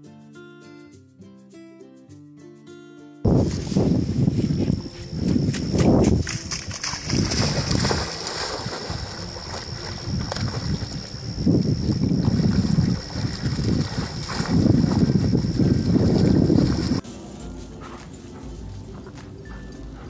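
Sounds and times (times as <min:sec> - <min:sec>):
wind buffeting microphone: 0:03.3 - 0:17.0
dogs splashing in water: 0:05.7 - 0:17.0.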